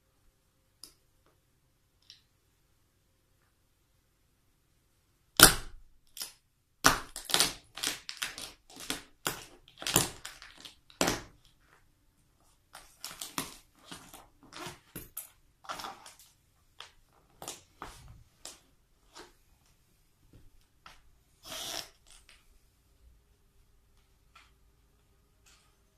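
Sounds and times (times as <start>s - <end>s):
toy car crunching and snapping: 5.4s - 11.4s.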